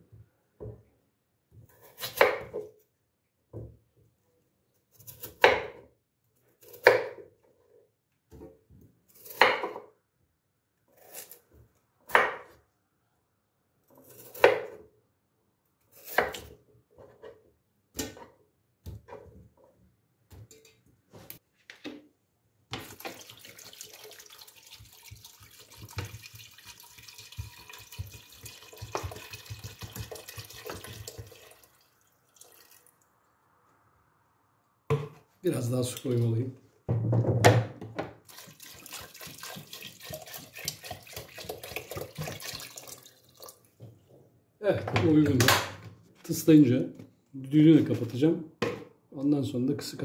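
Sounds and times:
water pouring into metal pot: 22.8 - 33.2, 38.2 - 43.7.

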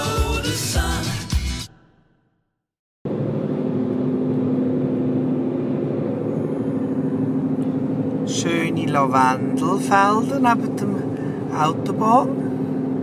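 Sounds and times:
van road and engine noise: 3.1 - 13.0.

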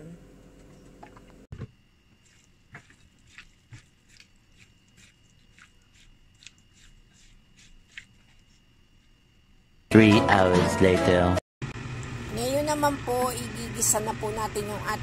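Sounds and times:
wet clicks and squelches: 2.2 - 8.2.

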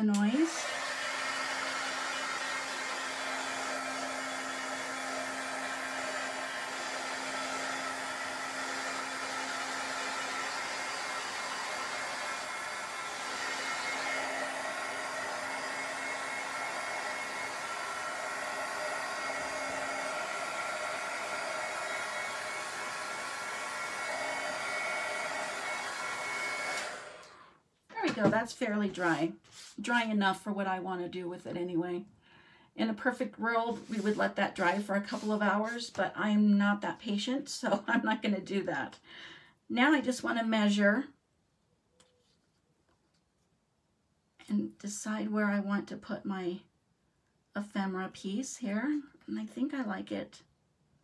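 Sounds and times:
blow dryer whirring: 0.1 - 27.5.

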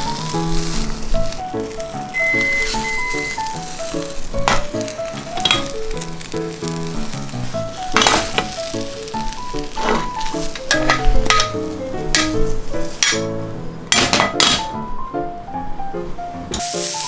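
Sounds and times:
pan scraping: 0.0 - 13.3
oil sizzling in a pan: 0.0 - 14.6, 16.5 - 17.0
light melodic background music: 0.0 - 17.0.

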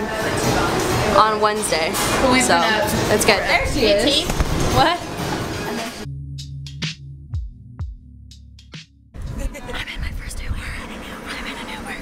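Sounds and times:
low synth notes: 2.2 - 9.6
drum-machine beat: 6.0 - 9.5.

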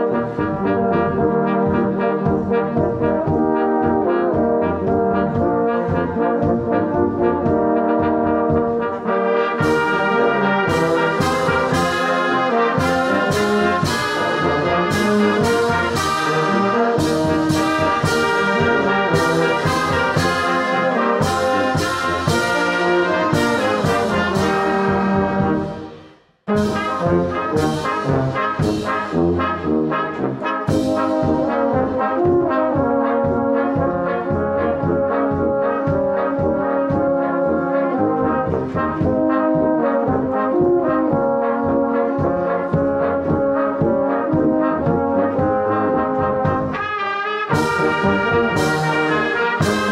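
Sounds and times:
brass band playing a hymn: 0.0 - 49.9
percussion strokes: 9.6 - 29.7.

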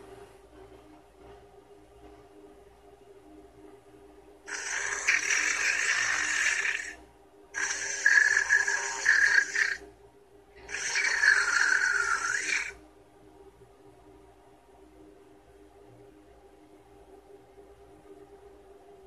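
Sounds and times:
robot synthetic snoring: 4.5 - 7.0, 7.6 - 9.8, 10.6 - 12.8.

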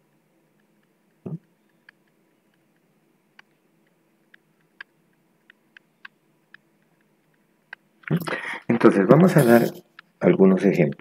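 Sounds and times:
low room hiss: 0.0 - 11.0
stylus tapping on tablet screen: 0.5 - 8.1.

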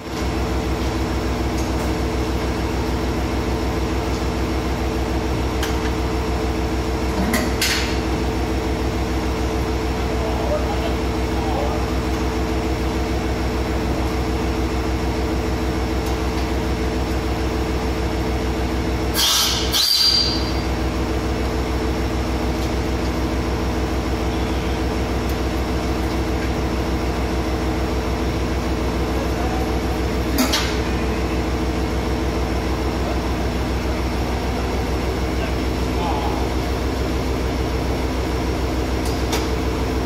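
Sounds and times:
railcar engine idling: 0.0 - 40.0.

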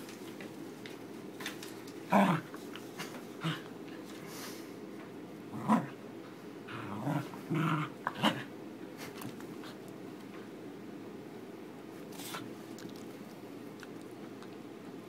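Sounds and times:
dog growling: 2.1 - 2.6, 3.4 - 3.7, 5.5 - 6.0, 6.7 - 8.5.

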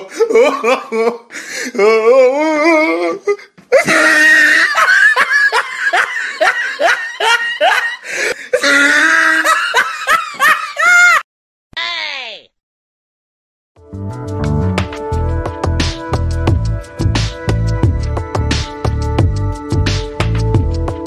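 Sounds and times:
loud laughter: 3.8 - 11.2.

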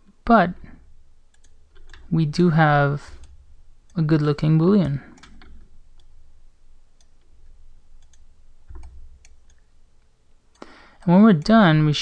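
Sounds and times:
faint low hum: 0.0 - 12.0
mouse and keyboard clicks: 5.1 - 6.1.

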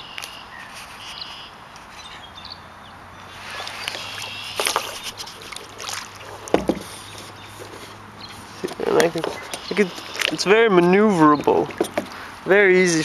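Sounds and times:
bird chirps: 0.0 - 5.2, 6.9 - 10.5
paddle strokes splashing: 3.2 - 10.5.

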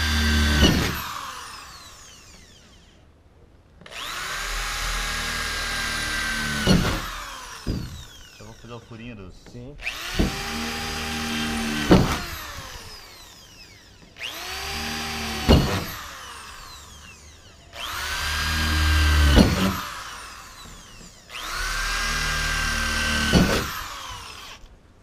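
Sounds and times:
electric drill boring sheet metal: 0.0 - 3.0, 3.9 - 8.9, 9.8 - 24.7
drill click: 9.8 - 24.8.

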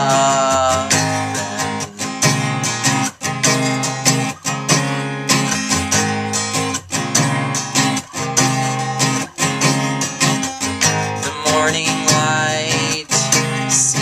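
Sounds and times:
person singing: 0.0 - 3.0, 7.6 - 14.0
acoustic guitar strumming: 0.0 - 14.0.

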